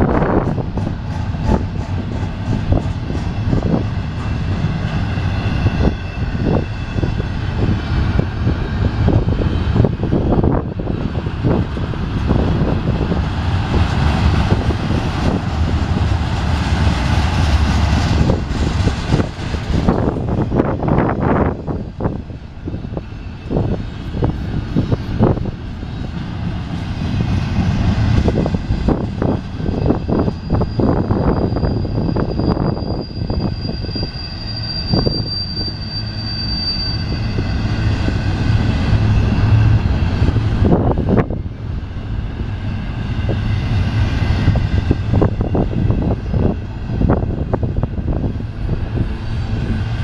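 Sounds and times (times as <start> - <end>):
steel wheels rumbling on rail: 0.0 - 50.0
train cars clicking and clunking: 0.0 - 50.0
high squeal: 3.7 - 10.5, 27.7 - 40.8.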